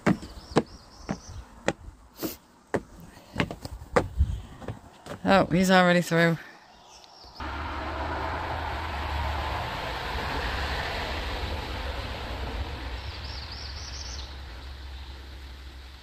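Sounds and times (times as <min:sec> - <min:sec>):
road noise: 0:00.0 - 0:16.0
vehicle engine rumble: 0:07.4 - 0:16.0.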